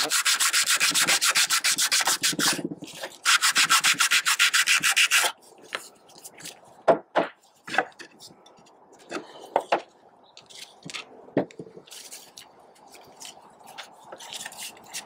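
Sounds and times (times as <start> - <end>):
sandpaper scratching fiberglass: 0.0 - 5.4, 13.0 - 15.0.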